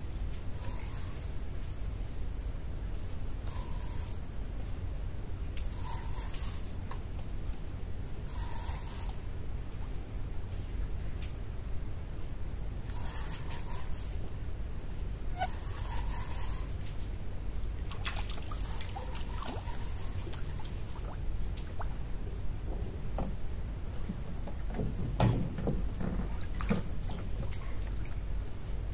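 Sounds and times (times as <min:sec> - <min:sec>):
water dribbling and splashing: 0:17.9 - 0:23.4, 0:24.0 - 0:28.4.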